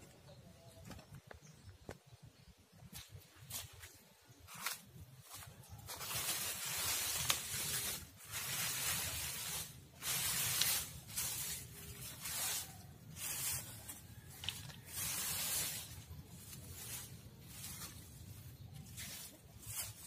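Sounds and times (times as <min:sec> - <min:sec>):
dry leaves rustling: 0:02.9 - 0:20.0
leaves crackling: 0:03.0 - 0:20.0.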